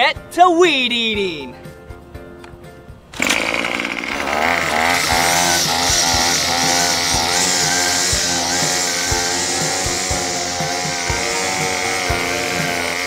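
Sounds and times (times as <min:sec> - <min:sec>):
string trimmer engine revving: 0:03.1 - 0:13.0.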